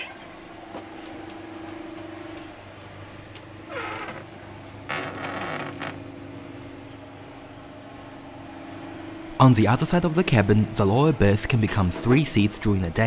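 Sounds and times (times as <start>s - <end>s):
steady low hum: 0.0s - 13.0s
wardrobe door creaking: 3.4s - 6.2s.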